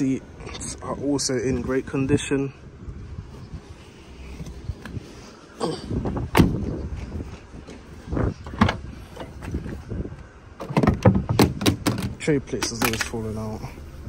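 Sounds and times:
car door shutting with a thud: 0:06.0 - 0:06.8
tailgate clunks: 0:06.0 - 0:06.8, 0:08.4 - 0:09.8, 0:10.6 - 0:13.0.

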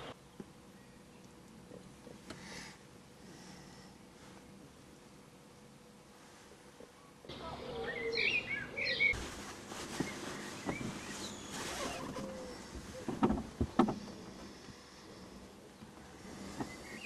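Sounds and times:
birds chirping: 0:00.0 - 0:02.7, 0:06.9 - 0:17.0
faint rustling: 0:09.0 - 0:17.0.

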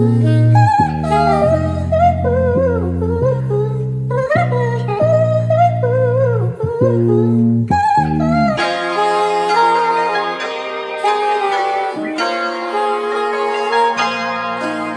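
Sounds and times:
bass line: 0:00.0 - 0:08.7
soul music: 0:00.0 - 0:14.9
wavering vocal melody: 0:00.0 - 0:14.9.

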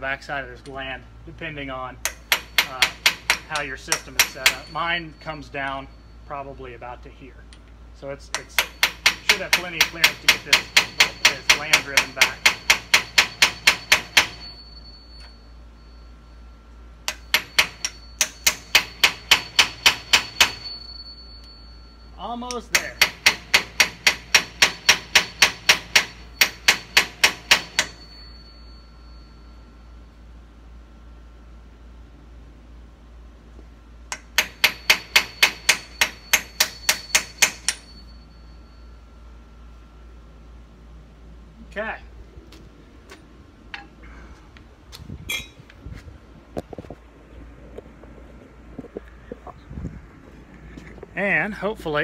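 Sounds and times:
hammer tapping metal punch: 0:02.0 - 0:05.9, 0:08.3 - 0:14.6, 0:17.0 - 0:21.6, 0:22.2 - 0:28.5, 0:34.1 - 0:38.0
faint metallic ring: 0:03.4 - 0:07.7, 0:13.0 - 0:23.0, 0:26.1 - 0:31.3, 0:34.1 - 0:40.4, 0:45.3 - 0:45.8.

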